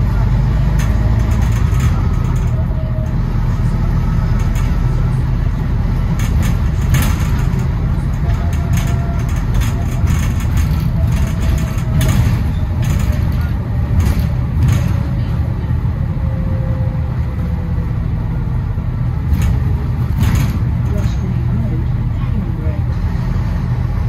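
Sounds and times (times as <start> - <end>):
bus engine rumbling: 0.0 - 24.0
knocks and rattles: 0.6 - 15.4, 19.2 - 21.4.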